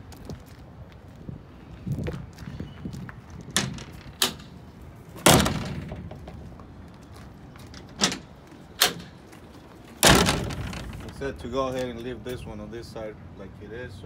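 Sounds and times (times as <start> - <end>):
metal compartment door clanking: 3.6 - 4.6, 5.2 - 6.4, 7.7 - 9.2, 10.0 - 11.3.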